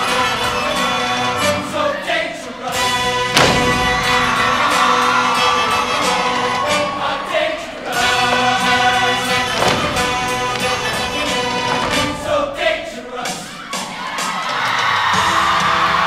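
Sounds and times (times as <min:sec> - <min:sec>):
choir singing: 0:00.0 - 0:14.5
band music: 0:02.7 - 0:14.3
sharp accented band hit: 0:03.4 - 0:04.4.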